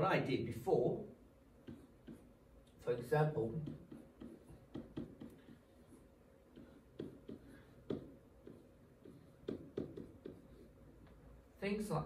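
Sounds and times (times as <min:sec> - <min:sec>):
pen tapping on whiteboard: 0:01.6 - 0:02.4, 0:03.4 - 0:11.2.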